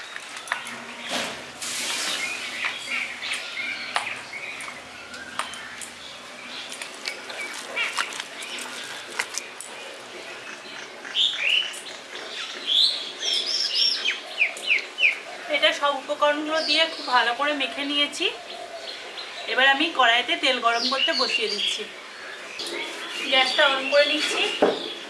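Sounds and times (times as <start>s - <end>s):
small birds chirping: 0.0s - 25.0s.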